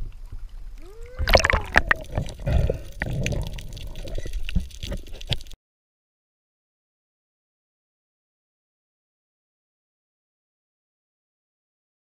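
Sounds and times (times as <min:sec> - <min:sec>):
water splashing and gurgling: 0:00.0 - 0:05.6.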